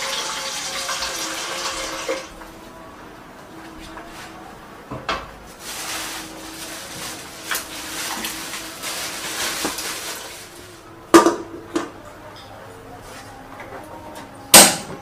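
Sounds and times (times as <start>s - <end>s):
plastic bag rustling: 5.5s - 11.0s.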